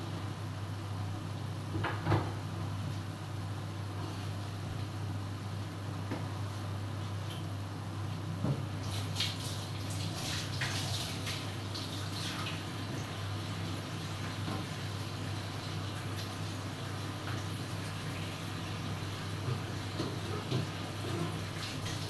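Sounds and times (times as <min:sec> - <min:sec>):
food bubbling and crackling in pan: 0:08.6 - 0:22.0.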